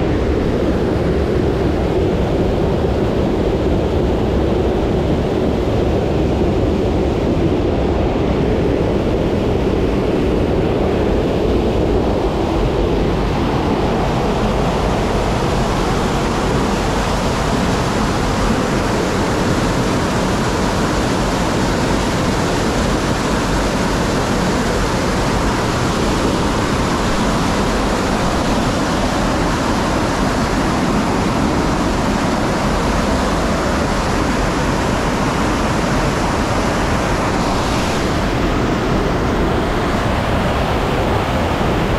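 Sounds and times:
water rushing in a rocky grotto: 0.0 - 41.9.

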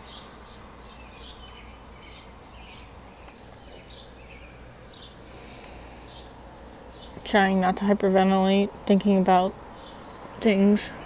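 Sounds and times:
small bird chirping: 0.0 - 7.8.

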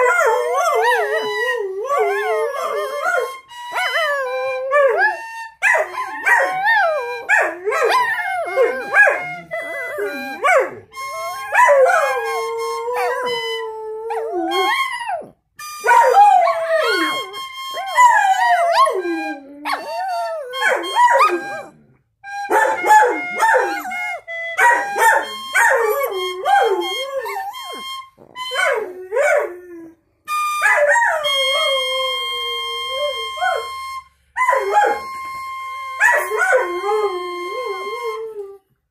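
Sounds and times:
held musical note: 0.0 - 14.8, 15.6 - 38.8
dogs howling: 0.0 - 15.3, 15.9 - 21.7.

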